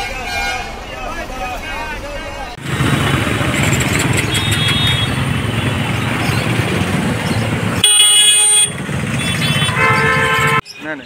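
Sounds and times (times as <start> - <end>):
street traffic engines: 0.0 - 11.0
vehicle horn blaring: 4.1 - 6.6, 7.8 - 10.6.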